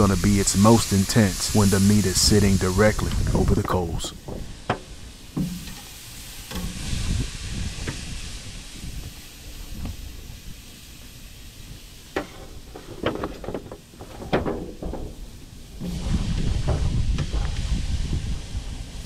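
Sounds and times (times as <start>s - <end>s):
ribs sizzling on a grill: 0.0s - 12.9s, 15.1s - 19.0s
sharp clicks and knocks: 3.6s - 5.9s.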